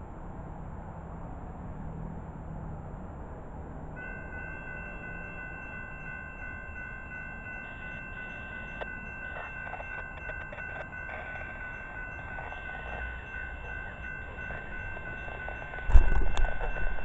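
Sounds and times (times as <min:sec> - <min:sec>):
railroad crossing bell ringing: 0:04.0 - 0:17.0.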